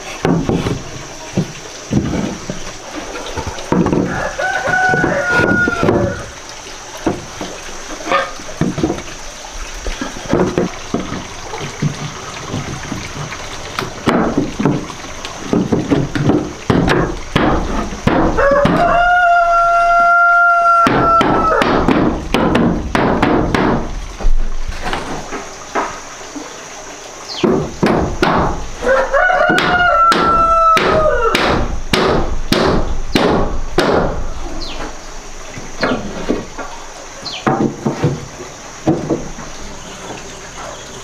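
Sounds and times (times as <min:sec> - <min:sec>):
hammer nailing wooden boards: 0:00.2 - 0:00.8, 0:15.5 - 0:18.9, 0:20.8 - 0:24.0, 0:27.4 - 0:28.6, 0:29.5 - 0:34.2
rooster crowing: 0:04.0 - 0:06.4, 0:18.3 - 0:21.7, 0:28.8 - 0:31.4.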